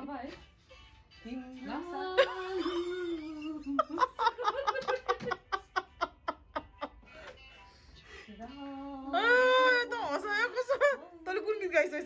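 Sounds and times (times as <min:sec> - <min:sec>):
woman laughing: 0:02.0 - 0:07.4.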